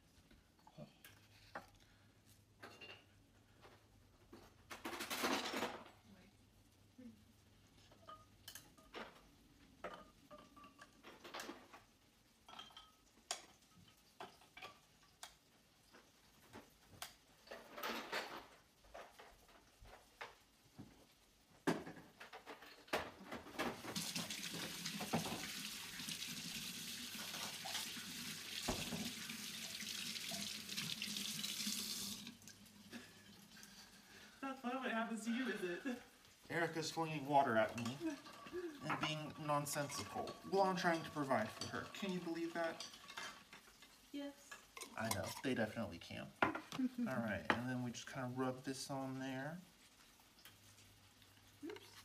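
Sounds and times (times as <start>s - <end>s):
tap running into a sink: 23.8s - 32.3s.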